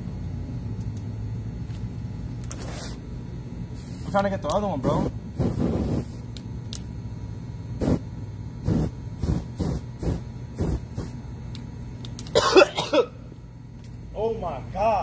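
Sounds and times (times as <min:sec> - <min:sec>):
steady low hum: 0:00.0 - 0:15.0
aerosol spray hissing: 0:05.4 - 0:06.2, 0:07.8 - 0:08.0, 0:08.6 - 0:11.2.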